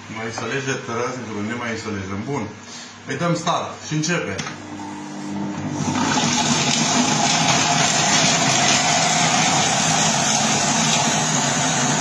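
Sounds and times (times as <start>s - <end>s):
blender motor whir: 4.8s - 12.0s.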